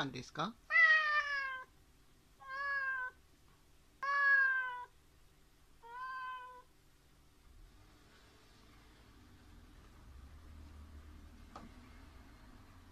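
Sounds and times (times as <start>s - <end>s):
cat meowing: 0.7s - 1.7s, 2.4s - 3.2s, 4.0s - 5.0s, 5.8s - 6.7s.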